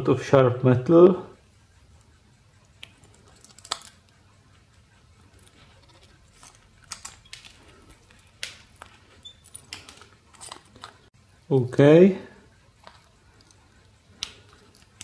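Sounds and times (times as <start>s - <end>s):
pliers tearing thin metal: 3.4s - 4.0s.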